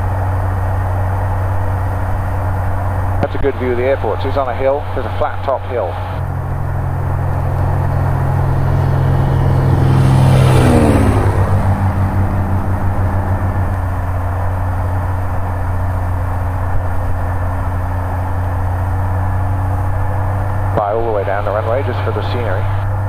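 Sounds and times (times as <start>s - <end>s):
propeller plane engine drone: 0.0s - 23.0s.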